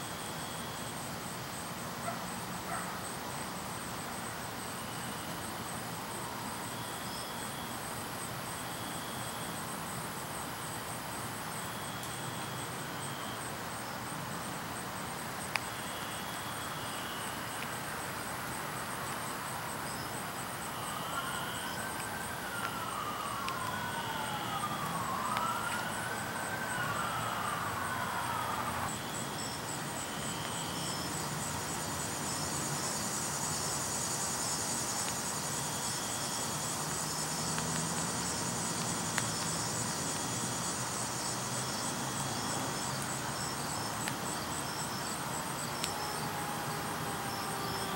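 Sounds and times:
insects trilling: 0.0 - 47.9
faint emergency siren wailing: 20.0 - 32.4, 35.5 - 47.9.

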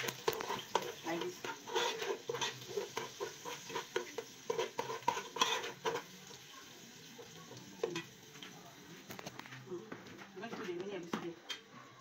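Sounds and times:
spoon scraping metal pot: 0.0 - 6.2
frying sizzle: 0.0 - 12.0.

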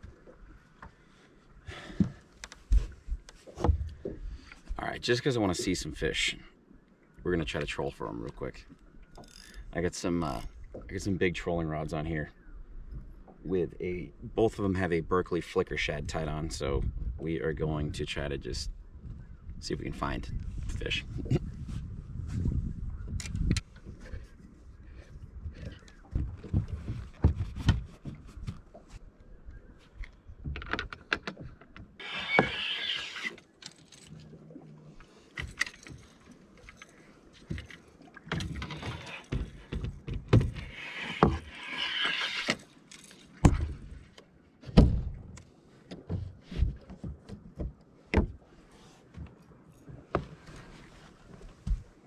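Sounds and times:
fishing gear knocks and clicks: 30.0 - 32.0, 35.3 - 41.6.

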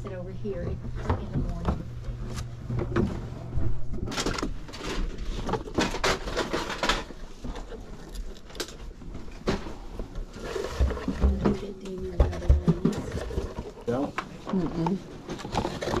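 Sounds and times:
cardboard boxes scraping and knocking: 10.2 - 14.1.

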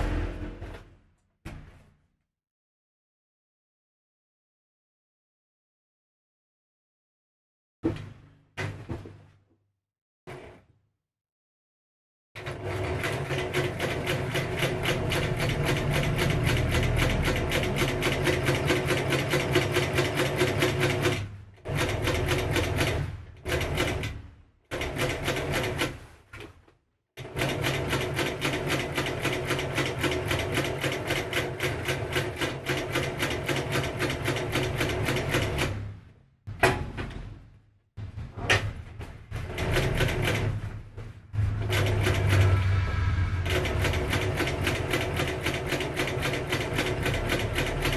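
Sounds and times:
industrial sewing machine stitching: 12.4 - 26.1, 27.2 - 35.9, 39.3 - 40.8, 41.4 - 42.8, 43.4 - 47.9.

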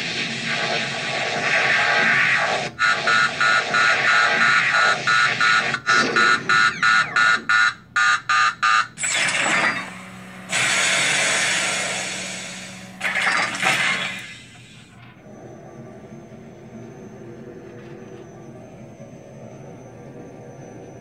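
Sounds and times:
steam-like venting hiss: 0.0 - 5.1, 10.4 - 14.9
rapid pulsing warning beep: 2.4 - 14.4.

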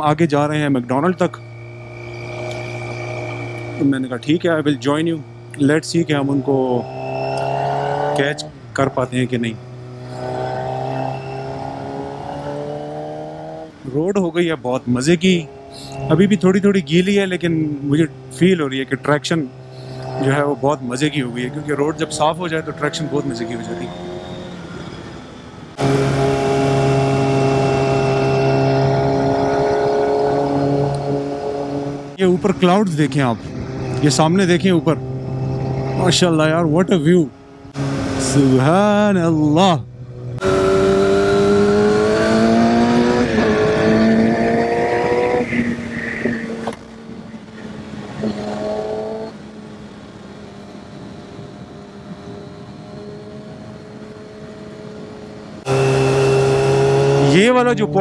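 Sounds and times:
motorcycle engine accelerating: 0.0 - 13.8, 14.9 - 58.0
wind noise: 23.8 - 34.4, 40.4 - 57.3.

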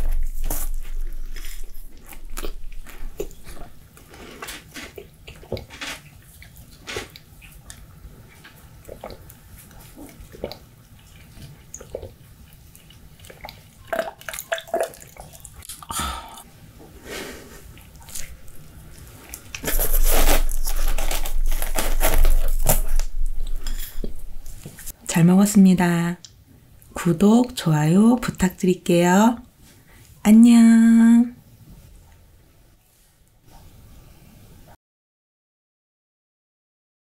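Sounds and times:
sipping and swallowing: 8.8 - 16.4.

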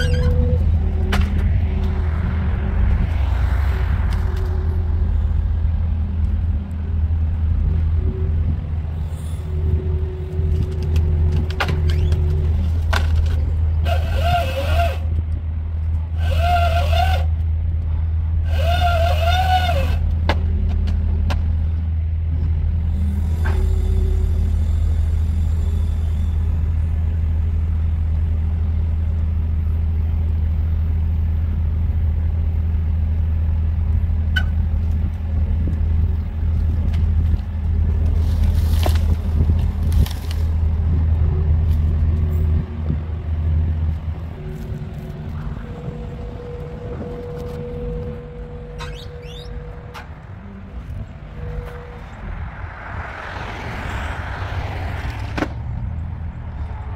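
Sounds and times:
high wavering sounds: 0.0 - 15.2, 40.5 - 55.0
diesel engine droning: 0.0 - 56.9.

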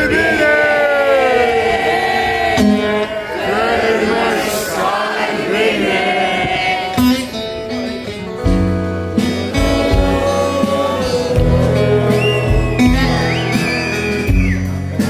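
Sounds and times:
acoustic rock band playing: 2.0 - 15.0
deep bass line: 8.4 - 15.0.

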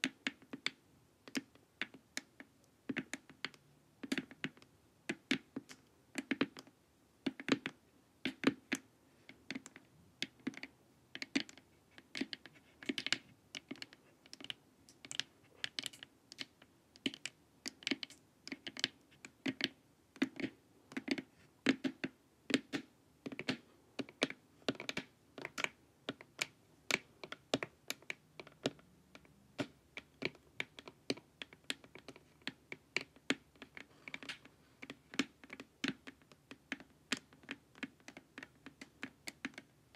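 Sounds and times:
fingernails tapping plastic mask: 9.5 - 39.7.

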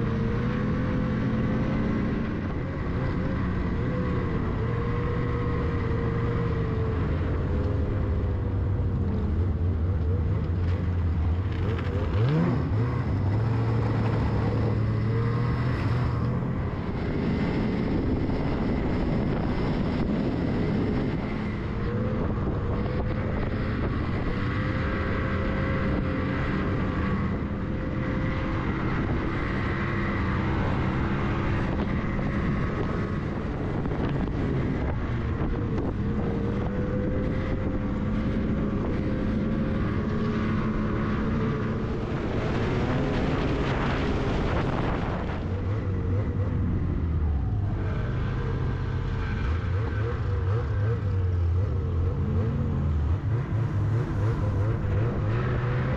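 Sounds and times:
snowmobile engine revving: 11.4 - 47.0, 47.7 - 55.9.

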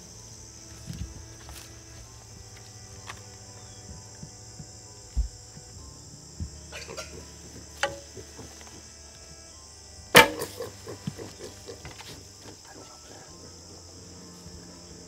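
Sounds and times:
insects chirring: 0.0 - 15.0
low thuds: 2.0 - 9.0
loud crack: 10.2 - 10.7.

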